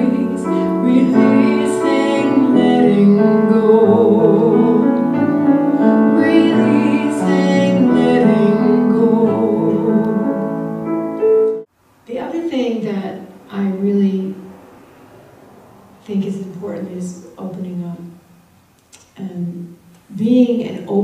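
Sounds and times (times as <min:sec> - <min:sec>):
woman singing: 0:00.0 - 0:10.4
piano accompaniment: 0:00.0 - 0:11.7.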